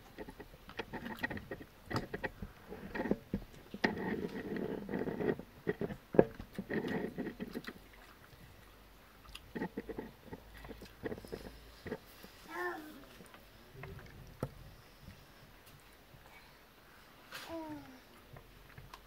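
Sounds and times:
mouths chewing: 0:00.0 - 0:12.5.

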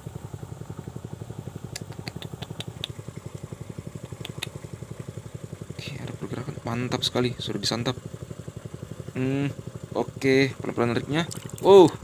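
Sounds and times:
small engine chugging: 0:00.0 - 0:12.0
short sharp ticks: 0:01.8 - 0:04.6.

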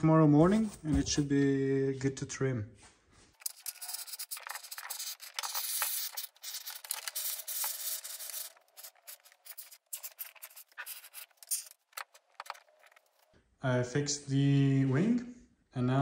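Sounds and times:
spray foam hissing and sputtering: 0:03.7 - 0:11.5.

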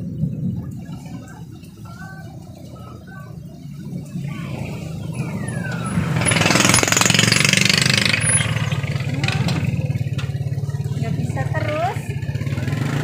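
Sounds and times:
low throbbing engine rumble: 0:00.0 - 0:13.0
vehicle passing on wet road: 0:02.7 - 0:13.0.

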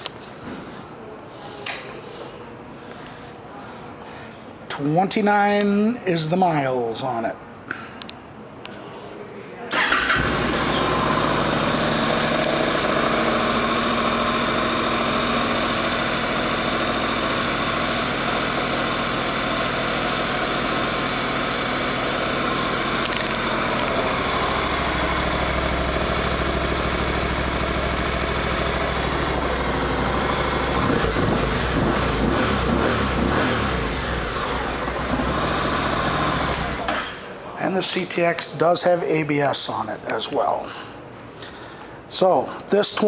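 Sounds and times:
motorcycle engine idling: 0:09.8 - 0:36.9.

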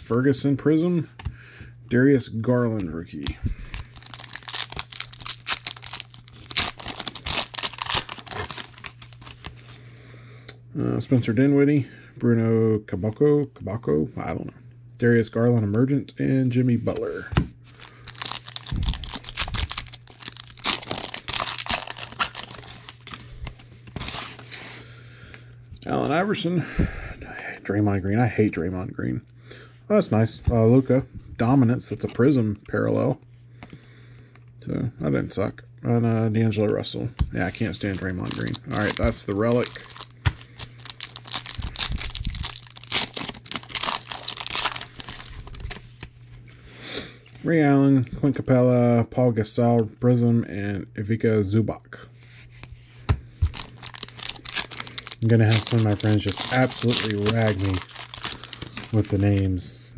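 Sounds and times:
foil wrapper tearing and crinkling: 0:03.6 - 0:09.7, 0:17.8 - 0:24.4, 0:37.4 - 0:45.8, 0:53.4 - 0:59.5.

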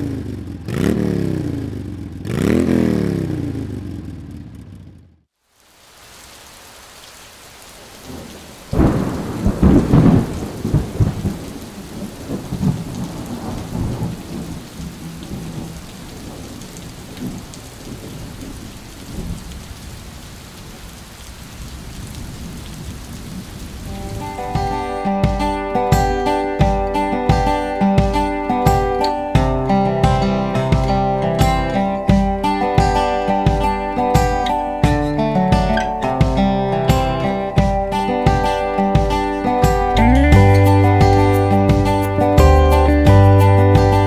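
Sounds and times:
steady rain: 0:05.3 - 0:44.0
thunder rolling: 0:08.1 - 0:20.0.

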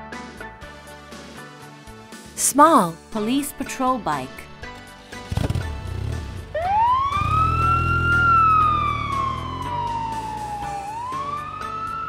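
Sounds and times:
police siren wailing: 0:06.5 - 0:12.0.

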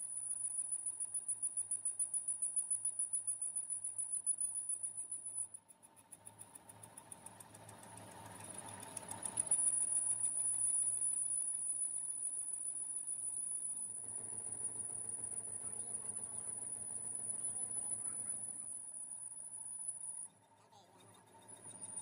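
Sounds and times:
low machine hum: 0:07.4 - 0:22.0.

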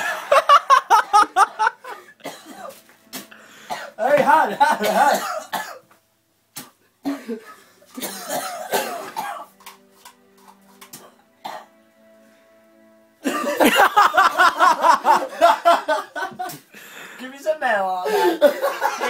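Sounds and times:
people laughing loudly: 0:00.0 - 0:02.2, 0:04.2 - 0:05.3, 0:13.2 - 0:16.6, 0:18.1 - 0:19.0
background music: 0:00.0 - 0:19.0
man coughing hard: 0:01.0 - 0:02.8, 0:03.7 - 0:05.9, 0:07.0 - 0:09.5, 0:11.4 - 0:11.8, 0:18.0 - 0:19.0.

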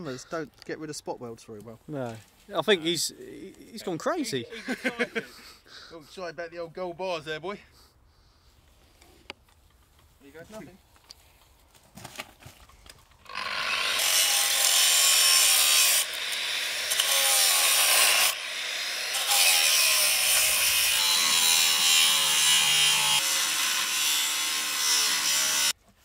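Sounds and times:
angle grinder cutting steel: 0:13.2 - 0:25.8.

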